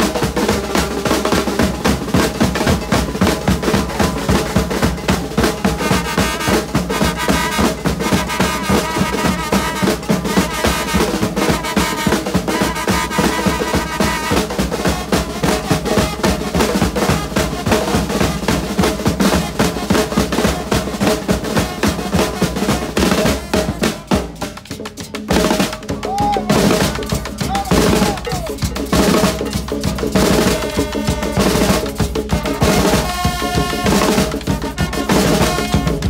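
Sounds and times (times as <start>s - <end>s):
drum section playing fast rhythm: 0.0s - 36.0s
held horn notes: 30.4s - 36.0s.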